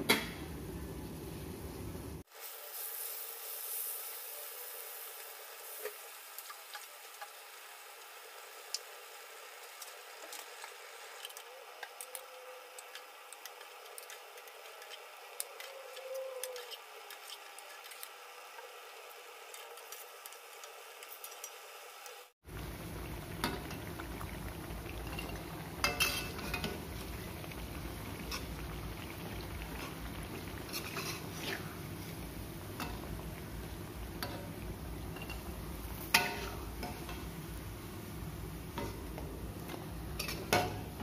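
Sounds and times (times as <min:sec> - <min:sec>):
hot oil sizzling and crackling: 0:00.0 - 0:41.0
metal spatula moving food: 0:09.6 - 0:21.7, 0:25.0 - 0:27.2, 0:29.7 - 0:33.2, 0:34.2 - 0:37.4, 0:38.7 - 0:41.0.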